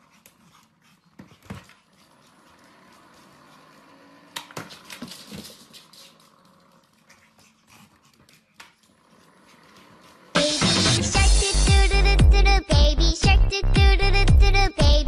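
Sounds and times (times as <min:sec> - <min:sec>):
loud music: 0:10.4 - 0:14.5.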